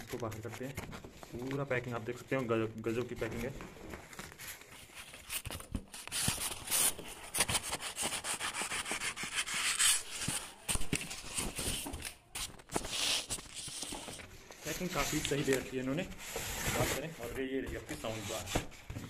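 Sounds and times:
plastic wrap crinkling: 9.4 - 18.6
polystyrene blocks scraping: 12.4 - 18.8.

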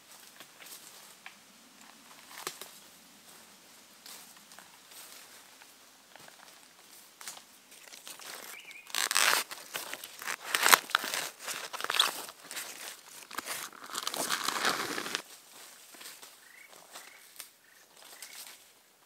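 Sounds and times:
dry plants tearing and crackling: 7.3 - 15.2.

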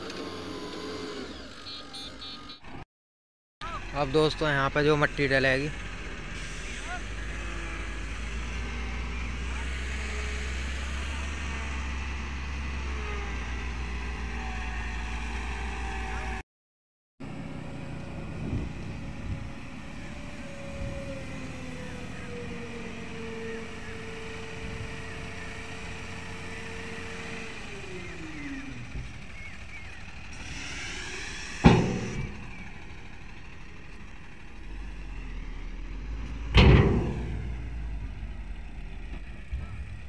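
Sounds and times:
diesel truck engine under load: 0.0 - 2.8, 3.6 - 16.4, 17.2 - 40.0
heavy thud: 36.5 - 37.7.

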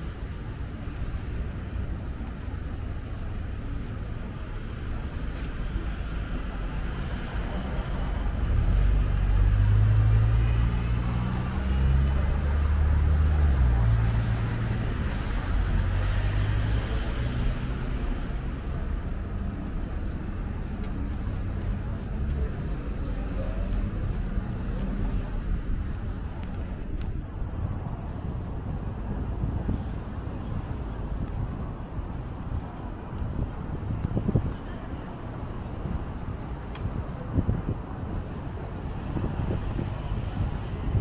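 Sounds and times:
cars passing: 0.0 - 41.0
heavy vehicle engine rumble: 0.0 - 41.0.

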